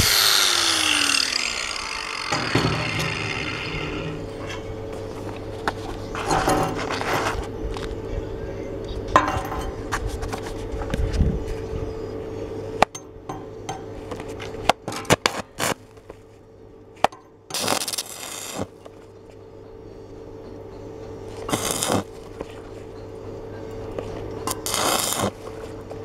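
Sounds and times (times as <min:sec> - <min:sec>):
welding arc hissing and crackling: 0:00.0 - 0:04.3, 0:17.5 - 0:18.8, 0:21.5 - 0:22.4, 0:24.5 - 0:25.8
steady low hum: 0:00.0 - 0:26.0
electrode clicking on steel: 0:21.5 - 0:22.1, 0:24.4 - 0:25.4.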